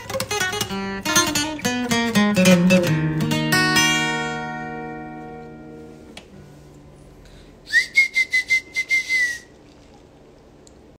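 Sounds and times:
acoustic guitar chord ringing: 0:00.0 - 0:07.6.

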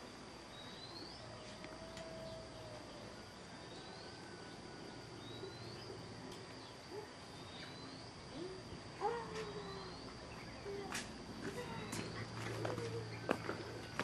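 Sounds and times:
insect drone: 0:00.0 - 0:14.0
bird chirping: 0:00.5 - 0:10.8.

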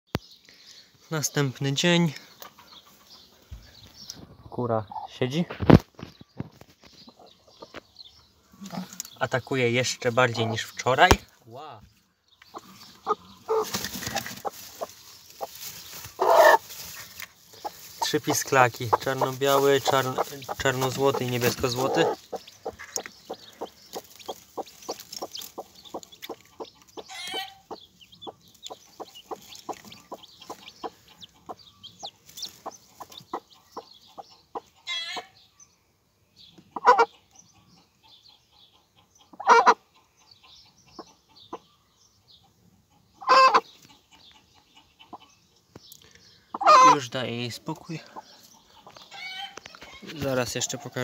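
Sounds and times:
chicks peeping: 0:00.1 - 0:51.0
hen clucking: 0:01.2 - 0:03.4, 0:04.5 - 0:05.5, 0:07.0 - 0:11.3, 0:12.4 - 0:35.4, 0:36.6 - 0:41.7, 0:42.4 - 0:45.5, 0:46.5 - 0:51.0
hen squawking: 0:12.5 - 0:13.8, 0:16.2 - 0:16.7, 0:17.7 - 0:23.4.

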